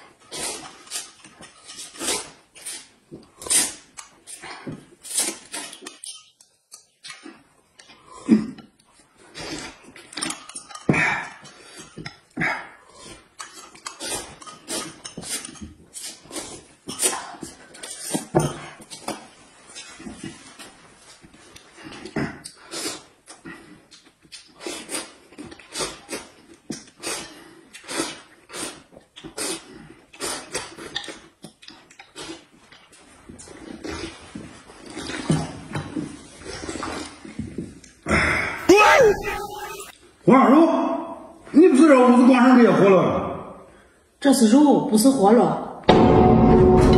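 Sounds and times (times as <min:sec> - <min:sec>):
person slurping and smacking: 0:12.6 - 0:20.6, 0:21.6 - 0:32.7.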